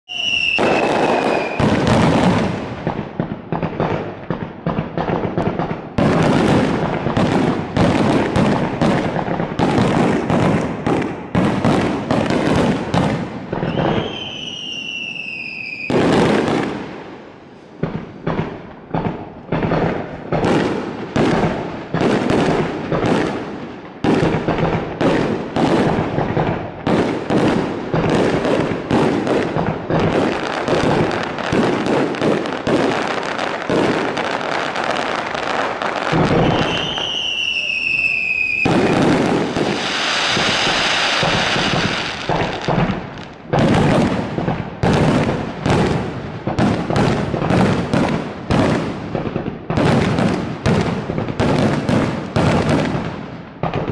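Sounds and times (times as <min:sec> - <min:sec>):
falling firework whistle: 0:00.0 - 0:02.4, 0:13.5 - 0:16.2, 0:35.9 - 0:42.7
fireworks bangs and crackle: 0:00.0 - 0:53.9.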